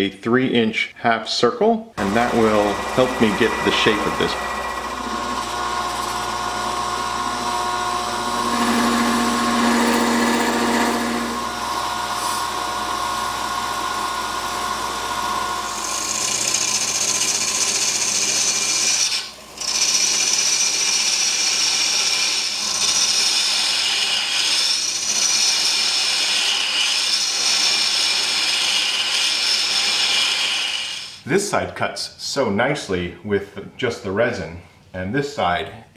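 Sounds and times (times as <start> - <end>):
motor hum: 2.0 - 24.3
lathe tool cutting resin: 2.0 - 31.2
hissing scrape of cutting: 12.1 - 12.5, 23.2 - 31.2.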